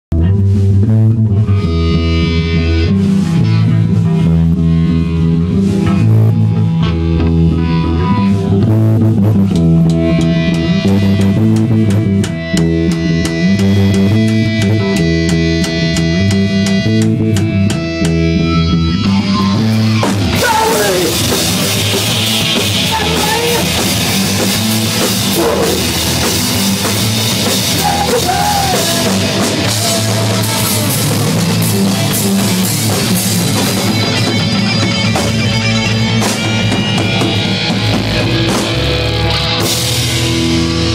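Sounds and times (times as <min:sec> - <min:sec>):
electric guitar and bass riff: 0:00.0 - 0:40.9
drums: 0:00.1 - 0:40.9.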